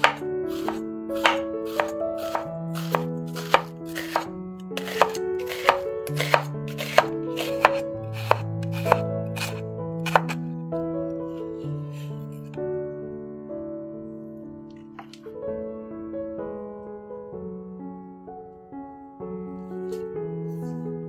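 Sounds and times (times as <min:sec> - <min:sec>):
knife knocking on cutting board: 0:00.0 - 0:04.3, 0:04.9 - 0:10.3
background music: 0:00.0 - 0:21.0.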